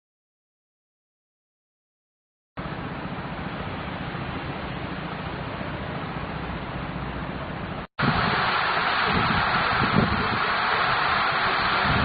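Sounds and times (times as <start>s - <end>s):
wind buffeting microphone: 8.0s - 12.0s
wind rushing: 8.0s - 12.0s.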